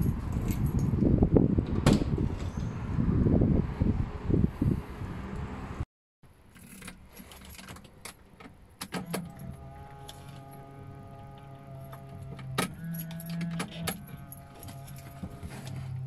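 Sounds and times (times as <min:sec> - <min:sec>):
car keys jangling: 0:06.5 - 0:15.9.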